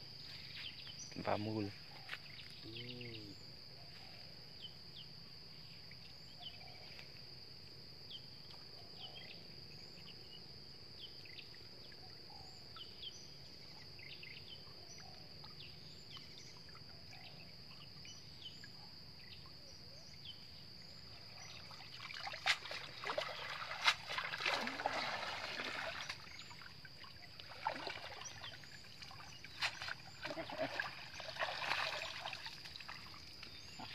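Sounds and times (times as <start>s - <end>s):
high insect drone: 0.0s - 33.9s
faint chirps: 0.2s - 7.2s
water pouring off net: 22.0s - 26.3s, 27.4s - 28.5s, 29.1s - 33.1s.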